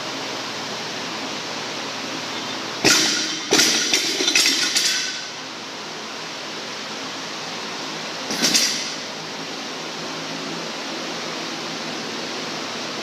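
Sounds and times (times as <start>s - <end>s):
barbell bouncing and plates rattling: 2.8s - 5.3s, 8.3s - 9.0s
barbell slamming on rubber floor: 2.8s - 5.3s.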